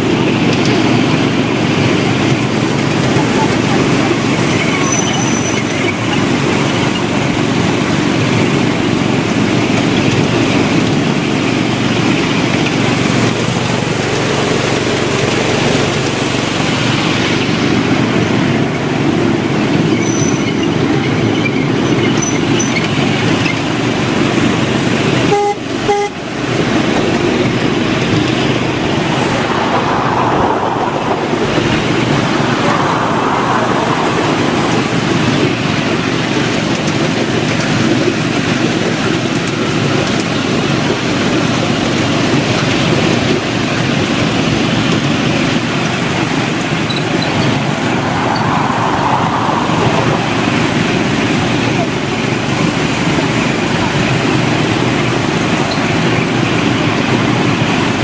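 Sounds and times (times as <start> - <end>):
miniature train rumbling on track: 0.0 - 58.0
train horn toots: 25.2 - 26.3.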